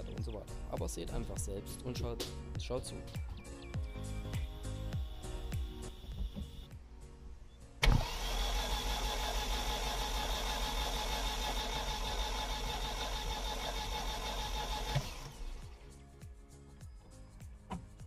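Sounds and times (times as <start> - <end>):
engine cranking on starter: 7.8 - 15.6.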